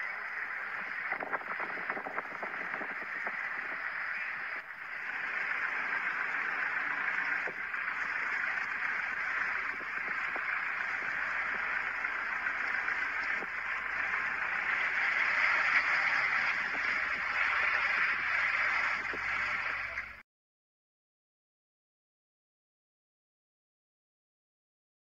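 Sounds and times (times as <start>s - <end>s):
wind-driven snow: 0.0s - 20.0s
vehicles moving over snow: 0.1s - 20.2s.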